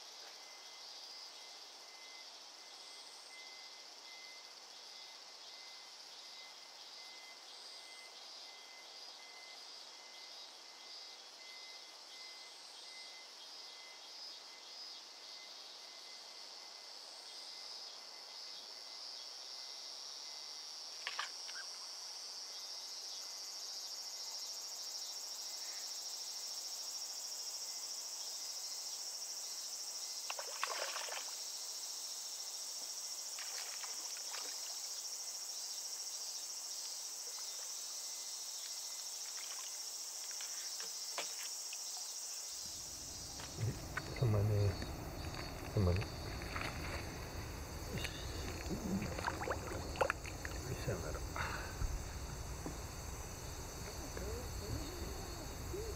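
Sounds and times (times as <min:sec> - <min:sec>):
high-pitched insect chorus: 0:00.0 - 0:55.9
soft noises: 0:43.3 - 0:52.9.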